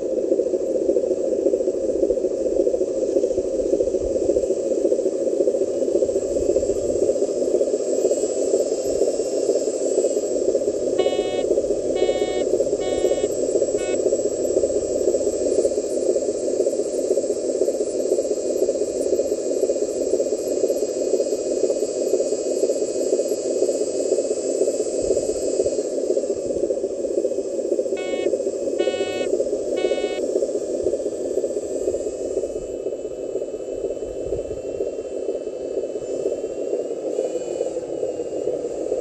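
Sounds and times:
short beeps: 11.0s - 14.0s, 28.0s - 30.2s.

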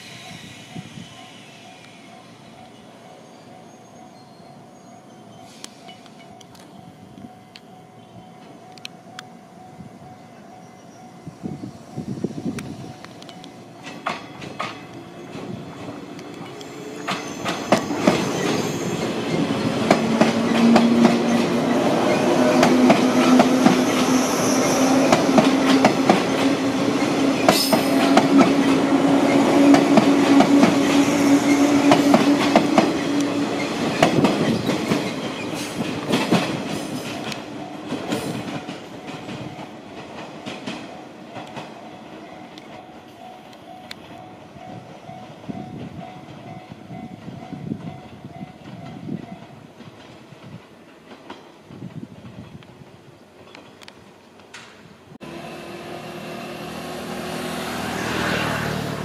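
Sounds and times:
wheels clicking on rail joints: 12.2s - 54.9s.

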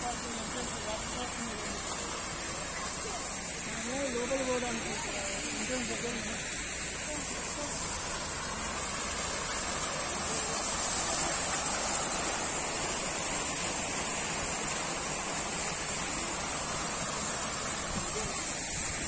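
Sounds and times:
fountain water splashing into pool: 0.0s - 19.0s.

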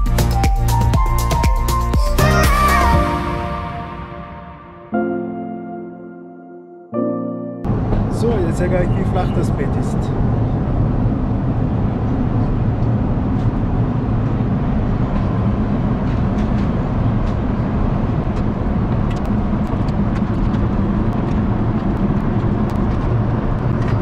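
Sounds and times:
airliner cabin engine noise: 7.7s - 24.0s.

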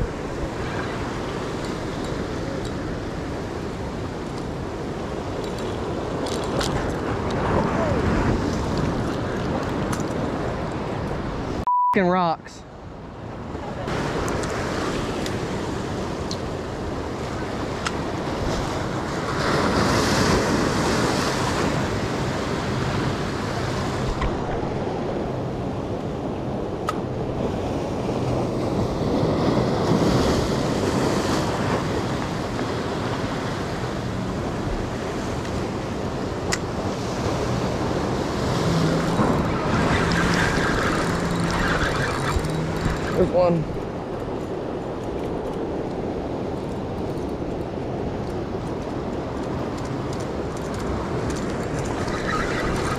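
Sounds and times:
surf washing against rocks: 13.7s - 25.8s, 26.5s - 45.0s, 45.6s - 52.9s.

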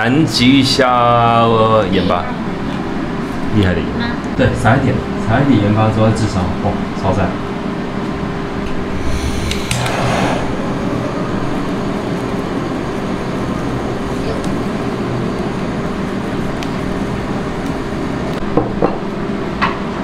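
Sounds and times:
blowtorch hissing: 8.7s - 18.4s.

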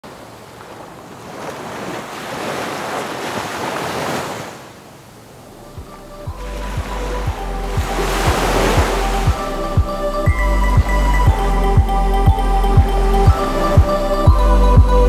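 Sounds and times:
ocean waves washing on beach: 0.0s - 9.9s
music: 5.6s - 15.0s.

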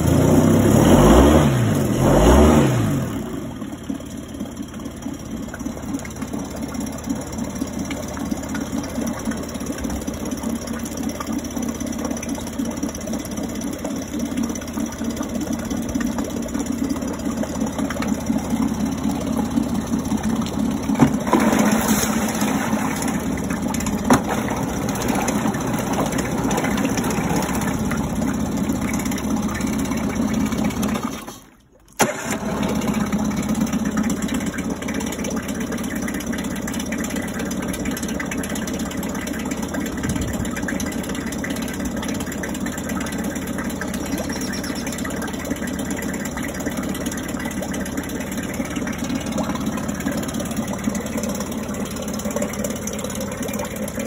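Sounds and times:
outboard motor running: 0.0s - 54.0s
water churning: 0.8s - 54.0s.

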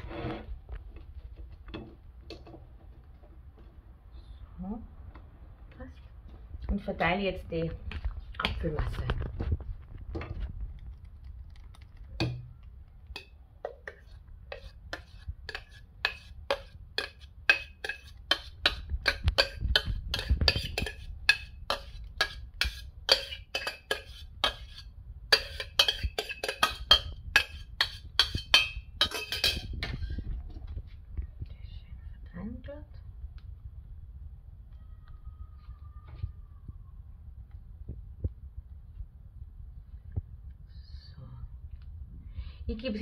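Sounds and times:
metal spoon scraping a pot: 0.0s - 0.5s, 13.1s - 30.2s.

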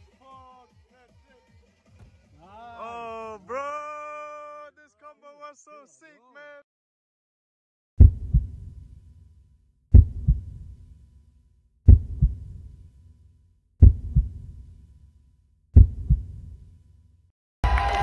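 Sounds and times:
deep heartbeat thumps: 8.0s - 8.8s, 9.9s - 10.7s, 11.9s - 12.7s, 13.8s - 14.6s, 15.8s - 16.6s.

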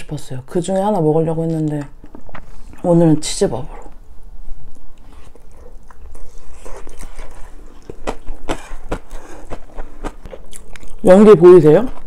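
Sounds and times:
chewing and wet mouth clicks: 4.7s - 8.4s, 9.5s - 11.0s.

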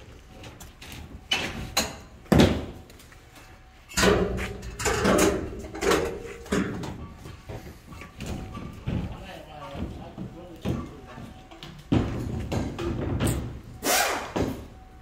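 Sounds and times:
metal engine parts clattering: 3.9s - 7.1s.

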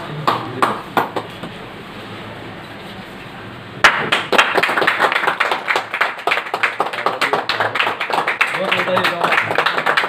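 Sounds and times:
group of people clapping: 0.2s - 1.4s, 3.8s - 10.0s.

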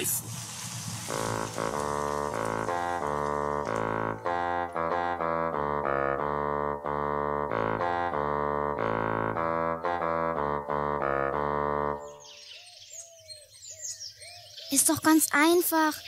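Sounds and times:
keyboard held chords: 1.1s - 12.5s.

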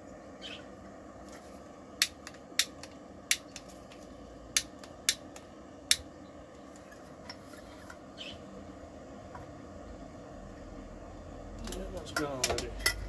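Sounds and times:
lighter igniter clicking: 2.0s - 3.7s, 4.5s - 6.1s.

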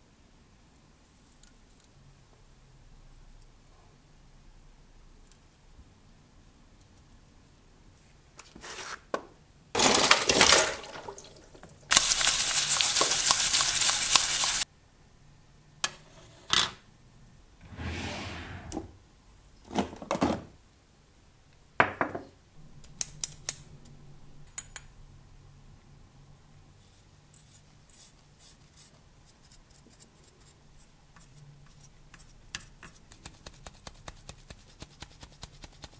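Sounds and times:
loud steady hiss: 11.9s - 14.6s.

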